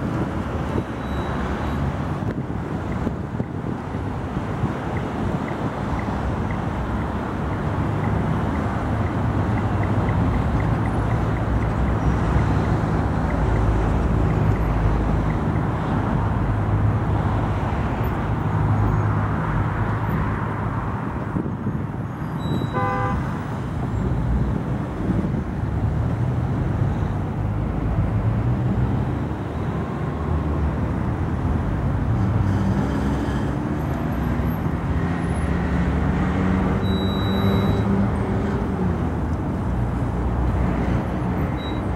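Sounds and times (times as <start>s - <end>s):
tram horn toot: 22.4s - 23.3s.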